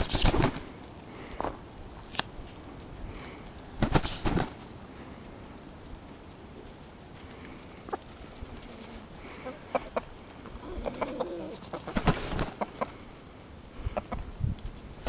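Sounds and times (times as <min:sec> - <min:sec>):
wing flapping: 0:00.0 - 0:01.4, 0:02.4 - 0:15.0
hens clucking: 0:07.4 - 0:14.5.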